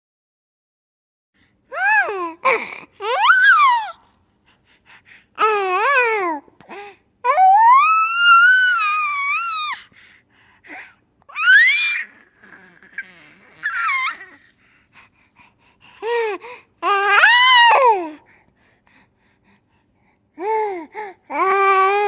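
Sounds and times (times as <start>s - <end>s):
baby squealing: 3.0s - 3.9s, 11.3s - 14.4s.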